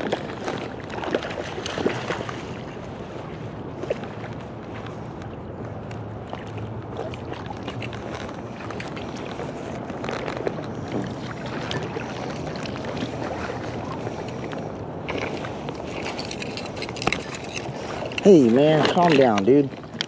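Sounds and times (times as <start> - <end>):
small clicks and splashes: 0.0 - 2.5, 3.8 - 20.0
river water rushing: 6.2 - 20.0.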